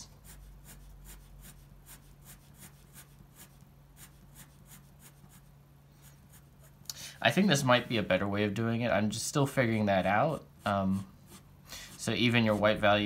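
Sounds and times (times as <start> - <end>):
pen scratching on paper: 0.2 - 5.5, 6.1 - 6.8, 10.6 - 13.0.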